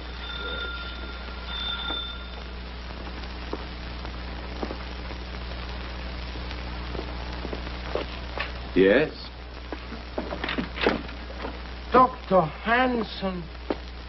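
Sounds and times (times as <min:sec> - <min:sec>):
electric doorbell ringing: 0:00.0 - 0:02.4
film soundtrack hum and hiss: 0:00.0 - 0:14.0.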